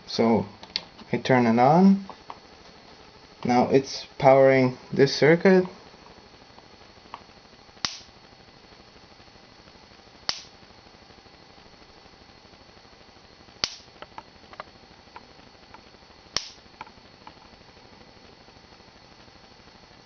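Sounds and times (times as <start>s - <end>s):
small sparks ticking: 6.3s - 8.5s, 9.6s - 10.9s, 13.4s - 17.6s
electric sparks snapping: 7.8s - 8.2s, 10.2s - 10.7s, 13.6s - 17.6s.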